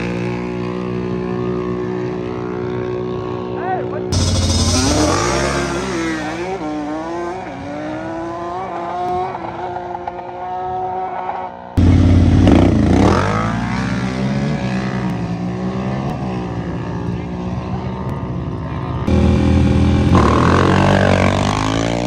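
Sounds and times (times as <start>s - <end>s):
atvs accelerating at full throttle: 0.0s - 22.0s
close engine revving: 4.1s - 11.1s, 19.0s - 22.0s.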